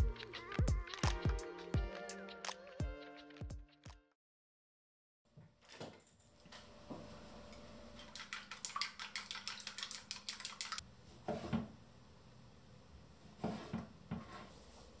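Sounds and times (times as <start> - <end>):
chopsticks whisking in a metal bowl: 8.0 - 10.8.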